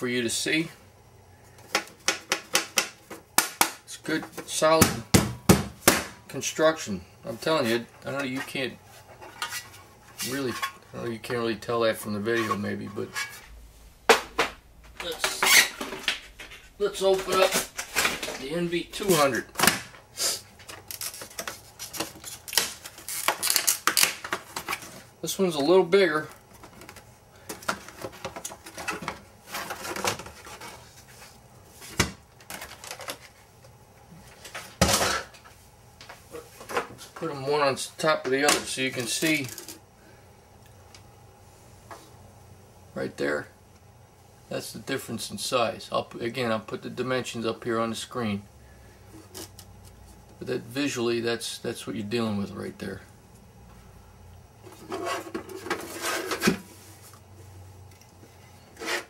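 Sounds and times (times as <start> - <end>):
steel safes scraping: 12.2 - 13.6, 15.0 - 19.4, 54.7 - 56.6, 58.8 - 59.0
plastic packaging crackling: 20.6 - 25.1.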